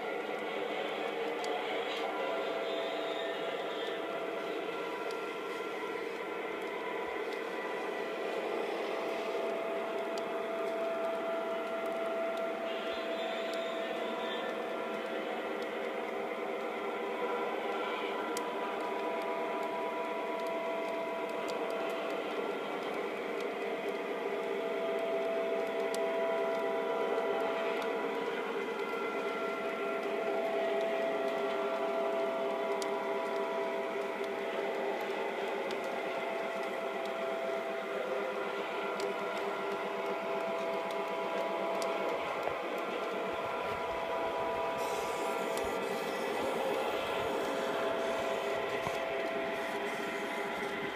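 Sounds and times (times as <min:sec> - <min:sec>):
model train whirring on track: 0:00.0 - 0:50.9
faint clicks: 0:18.0 - 0:50.9.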